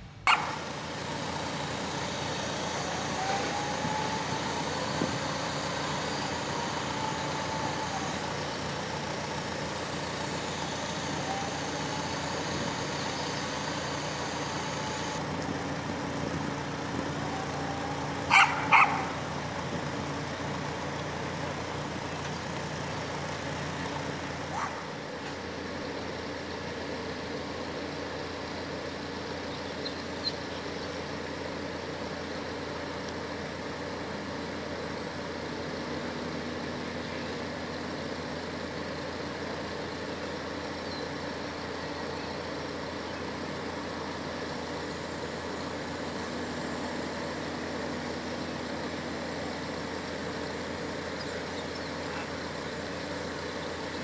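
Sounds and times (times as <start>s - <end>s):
crane diesel engine running: 0.0s - 54.0s
dog barking: 0.3s - 0.6s, 18.3s - 19.2s, 24.5s - 24.9s.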